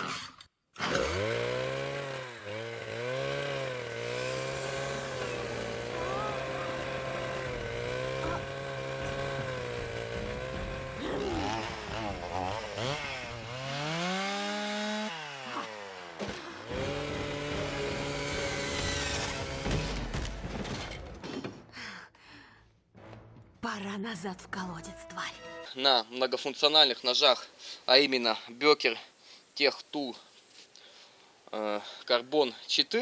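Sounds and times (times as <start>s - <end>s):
chainsaw engine revving: 0.8s - 21.1s.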